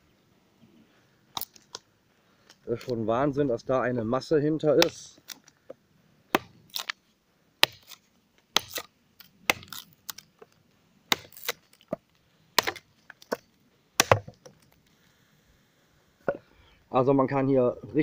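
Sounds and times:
knife chopping wood: 4.8s - 5.4s, 6.3s - 7.0s, 7.6s - 10.2s, 11.1s - 12.0s, 12.6s - 14.6s.

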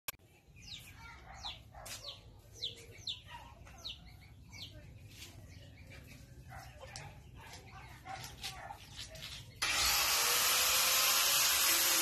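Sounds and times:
bird chirping: 0.1s - 9.6s.

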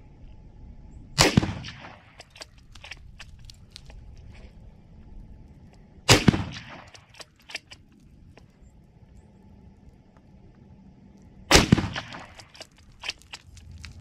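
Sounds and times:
rifle shot with echo: 1.2s - 2.4s, 6.1s - 7.4s, 11.5s - 12.6s.

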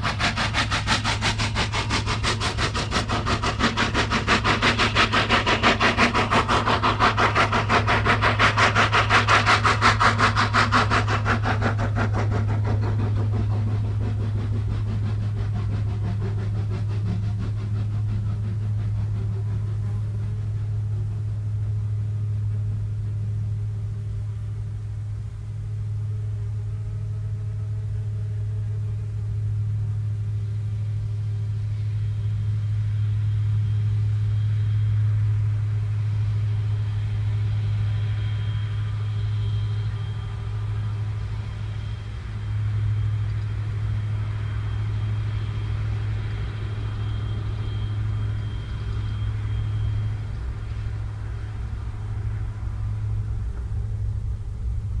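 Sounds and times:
diesel locomotive engine drone: 0.0s - 55.0s
steam locomotive exhaust beat: 0.0s - 55.0s
thin high whine: 17.8s - 55.0s.

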